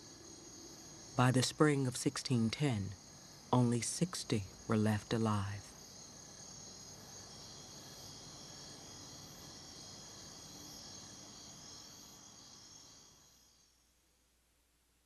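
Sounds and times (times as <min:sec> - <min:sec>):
crickets and insects chirping: 0:00.0 - 0:14.0.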